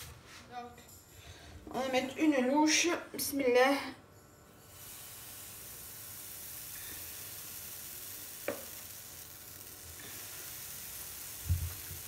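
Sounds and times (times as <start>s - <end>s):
batter sizzling in frying pan: 4.6s - 12.0s.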